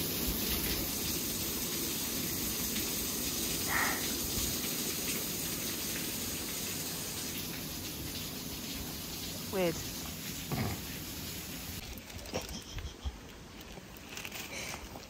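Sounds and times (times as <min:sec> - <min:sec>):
water splashing onto waterwheel: 0:00.0 - 0:12.3.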